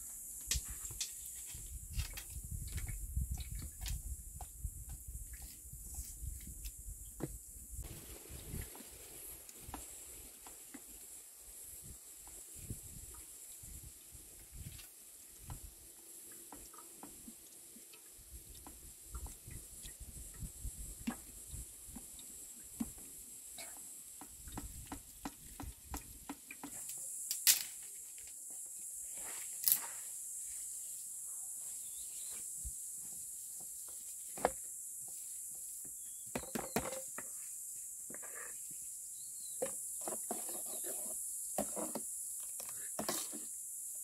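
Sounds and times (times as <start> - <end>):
steady high hiss: 7.7 - 15.4, 26.8 - 36.2.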